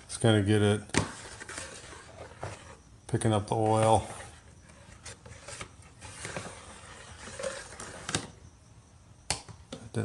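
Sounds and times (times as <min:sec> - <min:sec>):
tool scraping in oil pan: 0:01.0 - 0:02.8, 0:03.6 - 0:08.3
soft rustling: 0:03.5 - 0:08.2.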